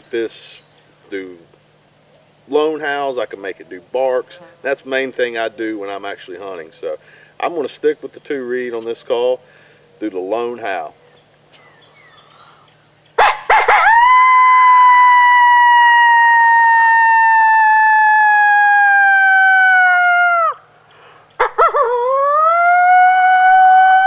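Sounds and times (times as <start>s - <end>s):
coyote howl call: 12.2s - 20.7s, 21.4s - 24.0s.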